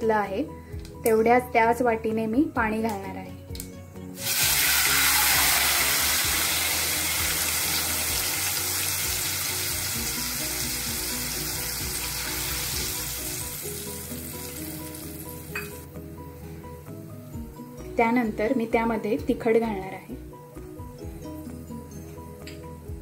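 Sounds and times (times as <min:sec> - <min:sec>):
hot oil sizzling: 0:04.2 - 0:15.9.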